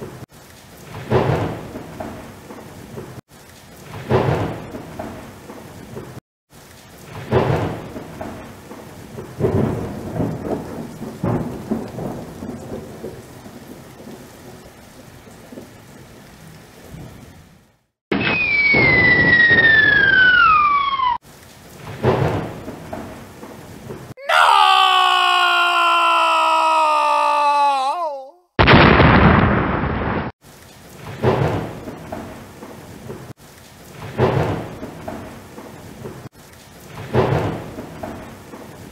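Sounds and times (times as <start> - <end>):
falling whistle: 18.1 - 21.2
explosion rumble: 28.6 - 30.3.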